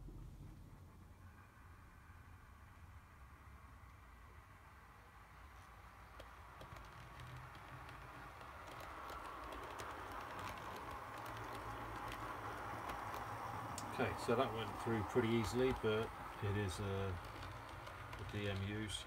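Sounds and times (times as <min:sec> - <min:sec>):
model train motor hum: 0:00.0 - 0:19.0
wheels clicking over points: 0:05.4 - 0:19.0.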